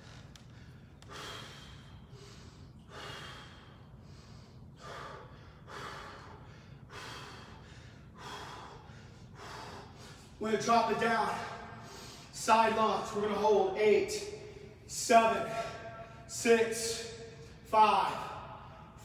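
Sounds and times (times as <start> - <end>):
man breathing heavily: 0.0 - 13.6, 14.2 - 19.0.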